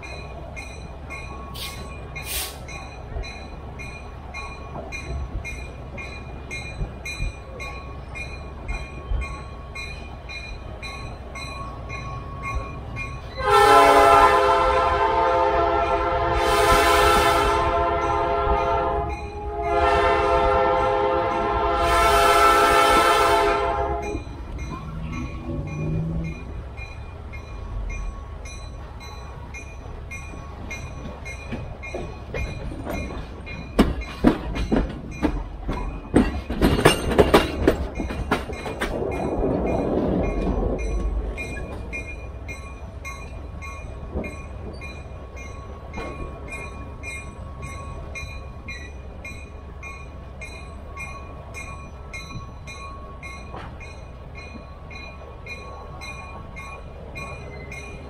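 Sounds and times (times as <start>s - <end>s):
train rolling on rails: 0.0s - 58.0s
hiss: 1.6s - 2.7s
wheels clacking over rail joints: 16.7s - 58.0s.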